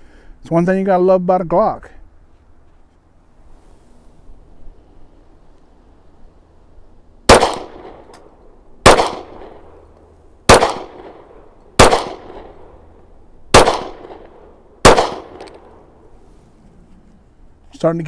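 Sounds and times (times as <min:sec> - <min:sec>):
pistol shots with echo: 0:07.3 - 0:08.2, 0:08.8 - 0:09.8, 0:10.5 - 0:12.8, 0:13.5 - 0:15.8.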